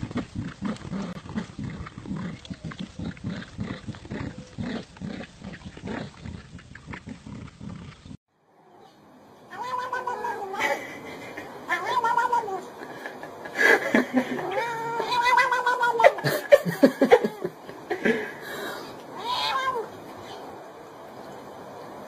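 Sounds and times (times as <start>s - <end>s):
cat yowling: 9.5s - 10.6s, 11.7s - 12.7s, 14.3s - 16.2s, 19.2s - 20.5s.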